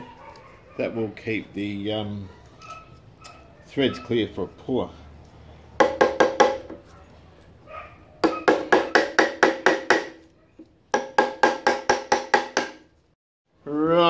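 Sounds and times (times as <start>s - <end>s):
hammer tapping on metal nut: 5.8s - 6.8s, 10.9s - 12.8s.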